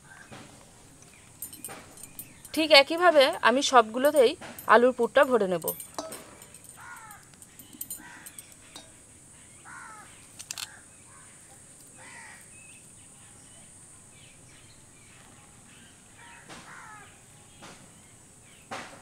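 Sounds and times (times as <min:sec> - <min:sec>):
steady high hiss: 0:00.0 - 0:19.0
crows cawing: 0:06.6 - 0:08.6, 0:09.6 - 0:12.5, 0:16.2 - 0:17.2.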